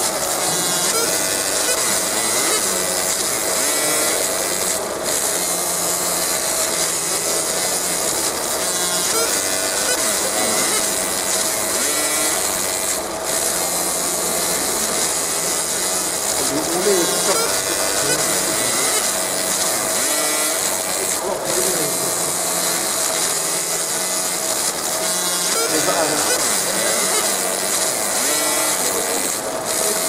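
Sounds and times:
laser hissing and crackling on metal: 0.0 - 30.0.

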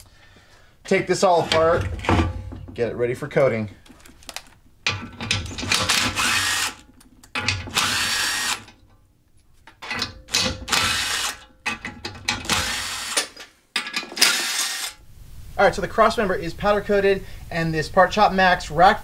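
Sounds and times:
cordless power driver whining: 5.4 - 6.8, 7.6 - 8.8, 10.6 - 11.4, 12.4 - 13.3, 14.2 - 15.0.

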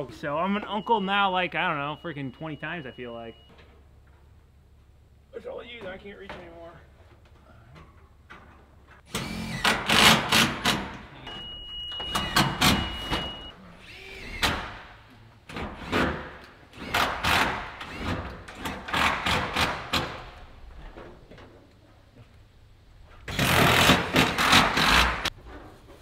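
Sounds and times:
steady high beep: 0.1 - 3.5, 11.3 - 13.5.

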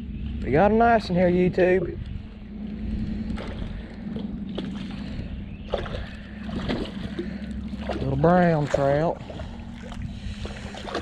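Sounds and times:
creek water running: 3.1 - 11.0.

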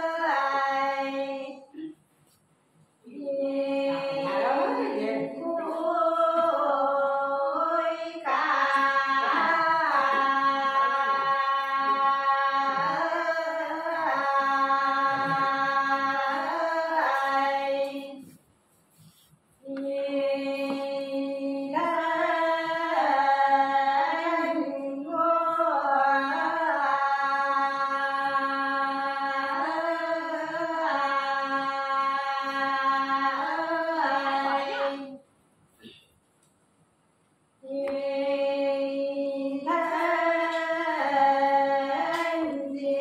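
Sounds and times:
person singing unaccompanied: 3.1 - 18.3, 37.6 - 43.0.

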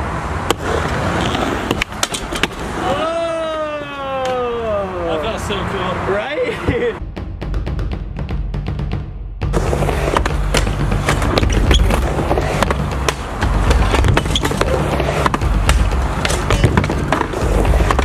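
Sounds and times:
skateboard wheels rolling: 0.0 - 4.6, 9.5 - 18.0
skateboard clacking on ramp: 10.1 - 18.0.

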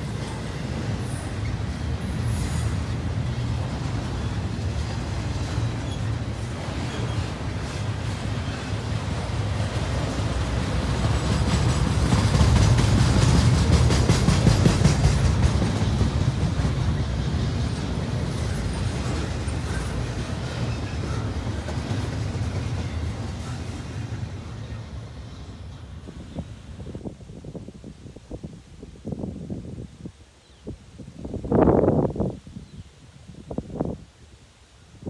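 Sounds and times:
freight train wheels clacking: 0.0 - 26.2.

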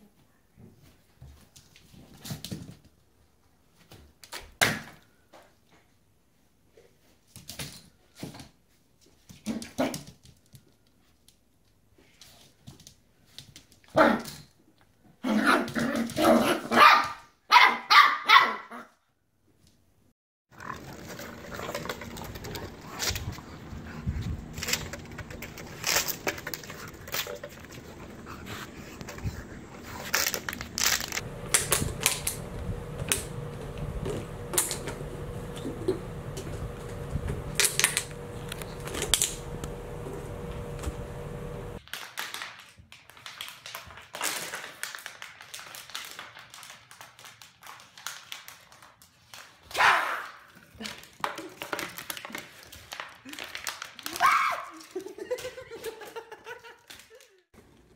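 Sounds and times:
plastic bottles clattering and crinkling: 20.6 - 23.6, 24.4 - 28.2.

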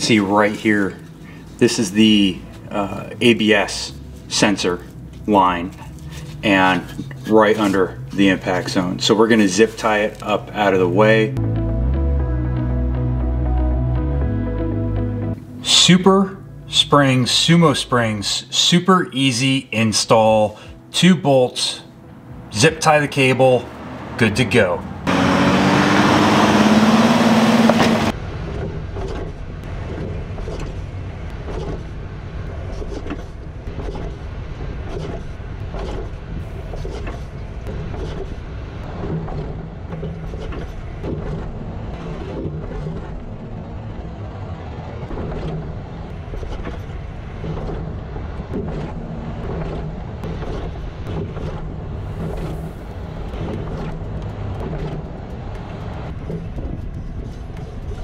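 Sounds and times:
road and wind rumble: 0.0 - 18.1, 20.0 - 58.0
suspension knocks and rattles: 27.6 - 58.0.

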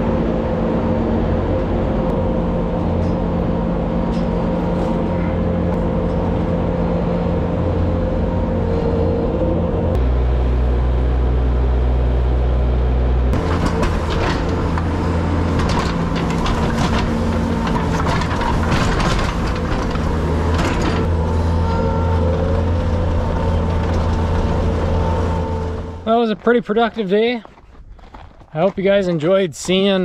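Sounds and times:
skid steer engine running: 0.0 - 28.7
rattles and rustles: 13.4 - 29.0.

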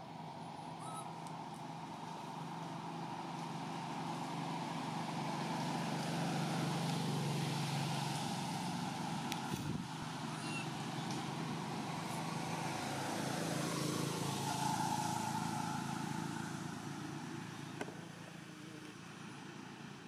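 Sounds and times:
vehicle engine hum: 0.0 - 20.0.

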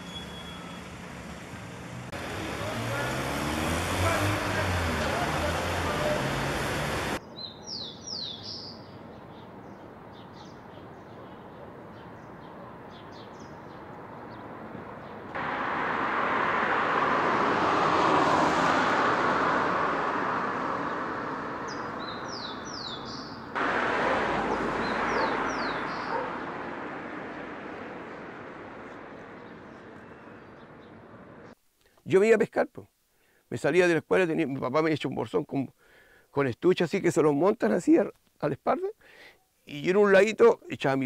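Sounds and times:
traffic noise: 0.0 - 31.7
vehicle passing by: 0.1 - 7.2, 15.3 - 31.6
small birds chirping: 7.2 - 15.3, 21.6 - 23.6, 24.5 - 26.5.

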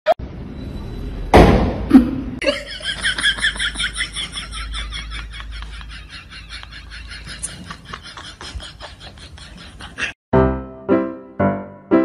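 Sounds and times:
loud thump: 1.3 - 1.9
person laughing: 1.9 - 10.2.

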